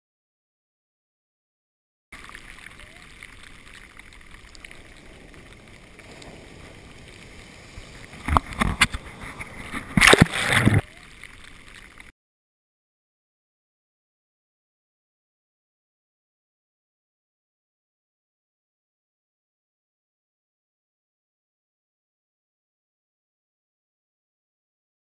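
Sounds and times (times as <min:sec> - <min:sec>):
close water splashes: 0:02.2 - 0:12.1
ocean surf washing: 0:02.2 - 0:12.1.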